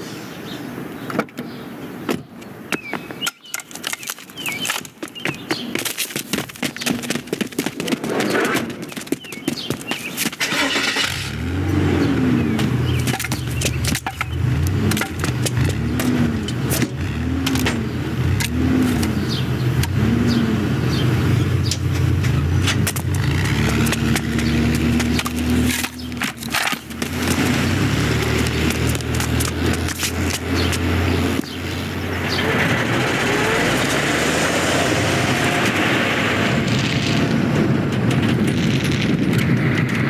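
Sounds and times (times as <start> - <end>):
knocks and clatters: 2.1 - 20.2, 20.9 - 33.0, 35.5 - 40.0
van engine humming: 4.3 - 40.0
engine whines: 10.4 - 40.0.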